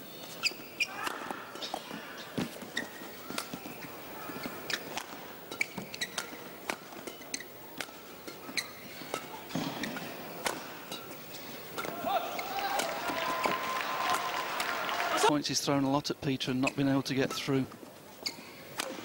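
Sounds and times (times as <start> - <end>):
shoe squeaks: 0.1 - 10.2, 18.1 - 18.9
footfalls on court: 1.0 - 6.3
racket striking shuttlecock: 4.7 - 12.0.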